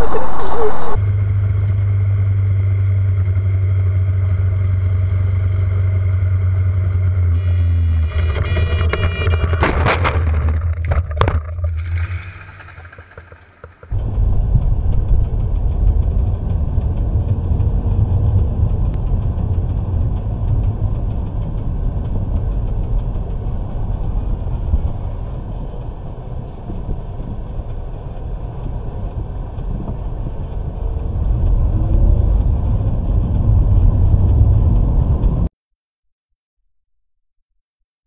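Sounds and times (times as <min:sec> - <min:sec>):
vehicle engine and road noise: 0:00.0 - 0:35.5.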